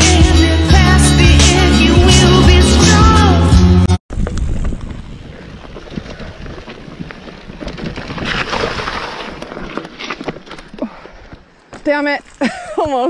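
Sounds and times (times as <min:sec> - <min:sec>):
bike tyres on dirt trail: 0:04.1 - 0:13.0
bike knocks and rattles: 0:04.2 - 0:12.1.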